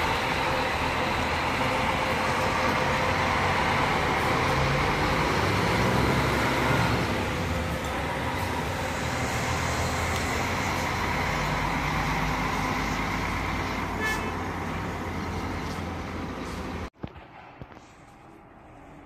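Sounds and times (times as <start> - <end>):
coach engine running: 0.0 - 16.9
short high horn toot: 14.0 - 14.5.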